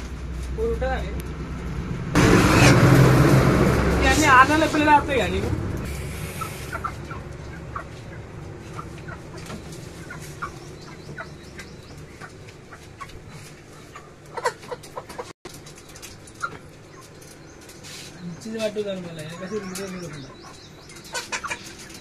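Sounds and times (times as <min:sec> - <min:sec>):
chickens clucking: 0:05.7 - 0:22.0.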